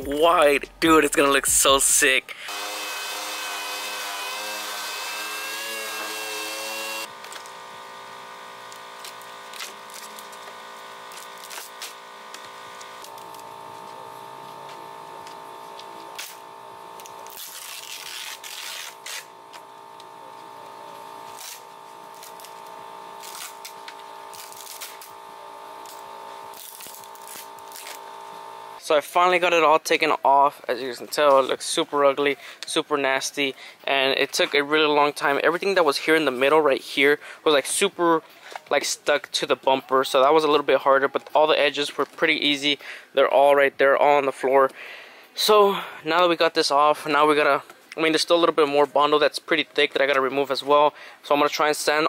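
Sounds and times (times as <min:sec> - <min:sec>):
pneumatic orbital sander running: 0:02.3 - 0:28.8
carbon fiber cloth peeling and tearing: 0:08.7 - 0:10.5, 0:11.1 - 0:13.4, 0:16.0 - 0:16.4, 0:17.0 - 0:19.7, 0:21.2 - 0:25.2, 0:25.8 - 0:28.1.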